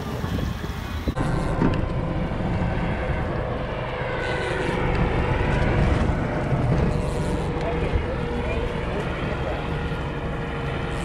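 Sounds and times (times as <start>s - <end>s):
outboard motor running: 0.0s - 11.0s.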